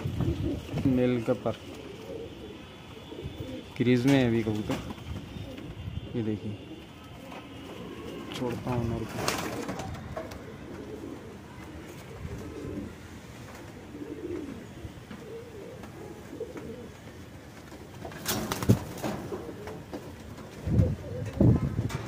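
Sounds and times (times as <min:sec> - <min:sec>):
pigeons cooing: 0:00.0 - 0:22.0
pigeon wing flaps: 0:09.0 - 0:10.4, 0:17.5 - 0:21.6.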